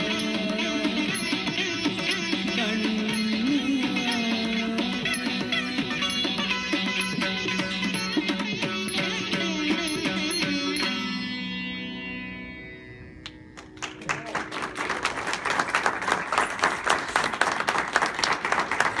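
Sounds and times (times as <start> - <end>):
audience applause: 13.6 - 19.0.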